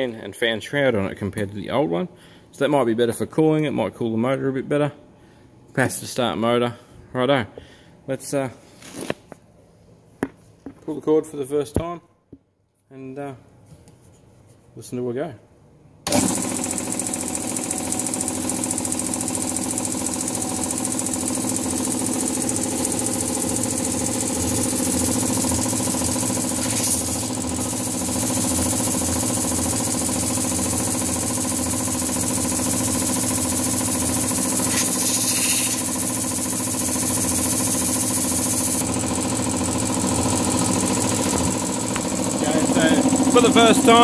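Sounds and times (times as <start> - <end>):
air compressor running: 16.0 - 44.0
high hiss of air: 34.8 - 35.9.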